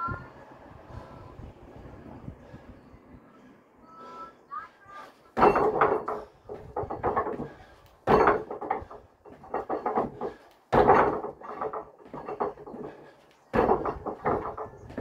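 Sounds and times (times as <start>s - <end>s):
heavy landings on concrete slabs: 5.3s - 15.0s
knocks and steps: 5.3s - 15.0s.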